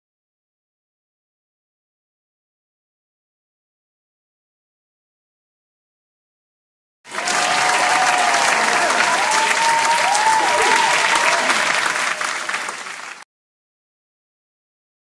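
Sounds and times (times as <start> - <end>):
whooping voices: 7.1 - 12.7
audience applause and cheering: 7.1 - 13.3.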